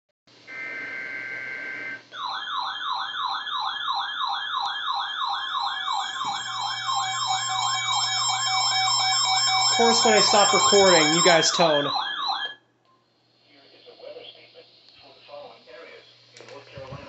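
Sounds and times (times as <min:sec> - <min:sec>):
electronic siren whooping: 0:00.5 - 0:12.6
steady alert tone: 0:05.9 - 0:12.1.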